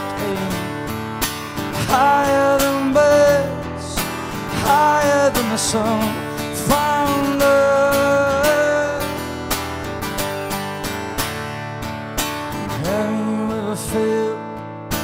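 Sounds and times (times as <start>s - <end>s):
man singing: 0.0s - 9.5s, 12.6s - 15.0s
acoustic guitar strumming: 0.0s - 15.0s.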